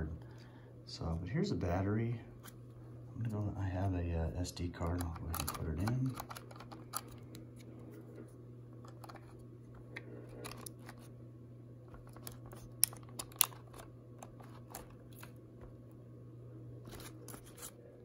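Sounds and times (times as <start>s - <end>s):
camcorder plastic clicks and rattles: 5.0s - 7.3s.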